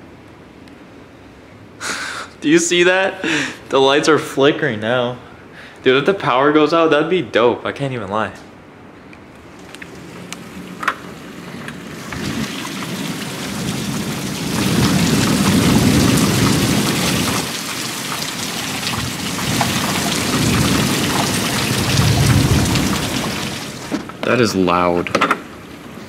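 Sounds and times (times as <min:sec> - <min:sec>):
heavy rain pouring: 0:10.0 - 0:26.0
low rolling thunder: 0:12.0 - 0:24.0.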